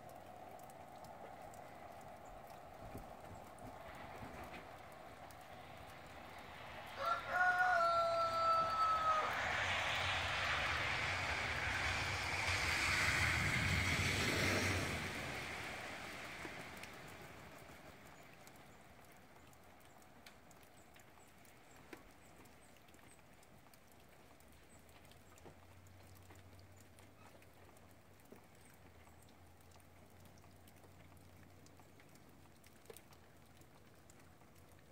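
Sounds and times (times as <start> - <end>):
small ticks: 0.0 - 6.9, 16.4 - 34.9
rushing noise with low rumble: 0.0 - 19.9.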